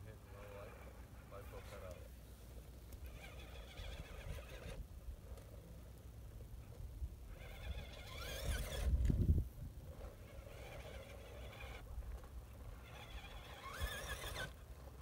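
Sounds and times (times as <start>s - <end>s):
toy car motor whining: 0.2s - 2.1s, 2.9s - 5.8s, 6.7s - 15.0s
wind rumble on microphone: 6.8s - 11.0s.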